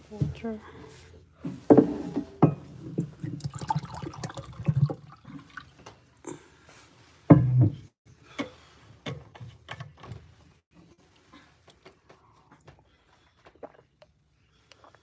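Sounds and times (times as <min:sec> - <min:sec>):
person gulping water: 0:03.1 - 0:06.4.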